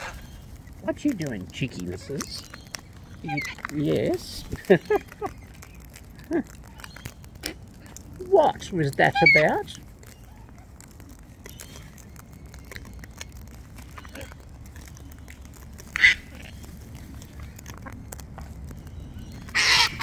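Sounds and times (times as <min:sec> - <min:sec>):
cockatoo screeching: 0:00.0 - 0:00.3, 0:03.1 - 0:03.7, 0:09.0 - 0:11.1, 0:15.8 - 0:16.7, 0:19.4 - 0:20.0
faint clicks: 0:00.0 - 0:20.0.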